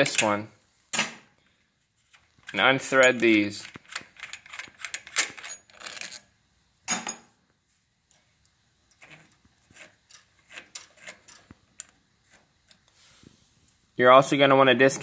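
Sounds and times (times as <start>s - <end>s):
metal bolts clinking and rattling: 2.4s - 6.3s, 6.9s - 7.3s, 10.0s - 12.0s.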